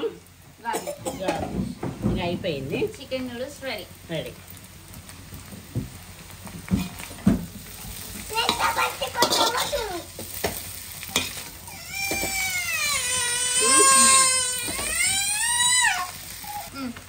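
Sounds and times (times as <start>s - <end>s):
light sizzling: 0.0s - 17.0s
child whining cry: 11.6s - 17.0s
spatula knocking on wok: 12.0s - 12.5s.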